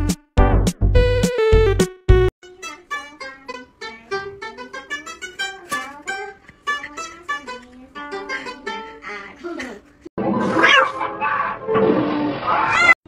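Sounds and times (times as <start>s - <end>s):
plucked lute melody: 2.4s - 9.8s.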